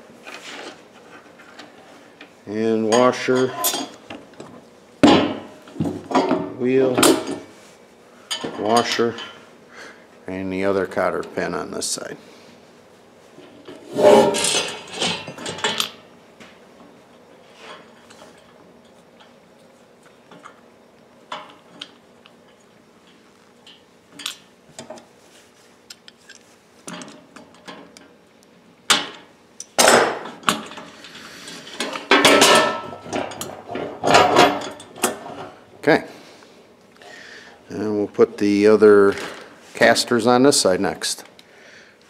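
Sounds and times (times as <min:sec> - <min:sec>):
sheet-metal base clattering on bench: 0:13.9 - 0:15.8, 0:31.8 - 0:35.2
metal parts clattering and clinking: 0:14.0 - 0:16.0.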